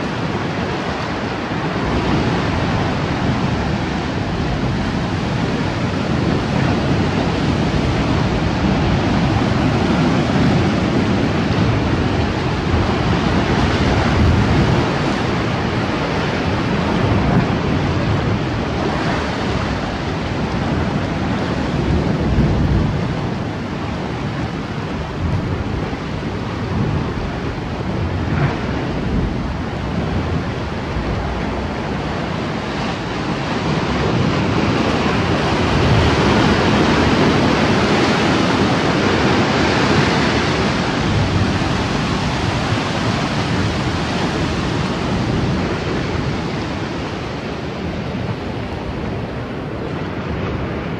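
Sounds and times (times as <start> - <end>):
surf breaking on rocky shore: 0.0 - 50.9
wind buffeting microphone: 0.0 - 50.9.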